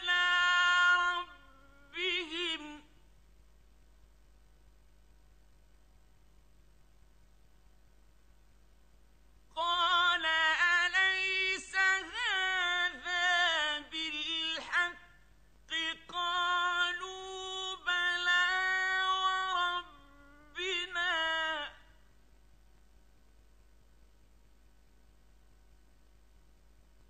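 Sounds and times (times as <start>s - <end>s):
man chanting in a high voice: 0.0s - 2.9s, 9.6s - 21.9s.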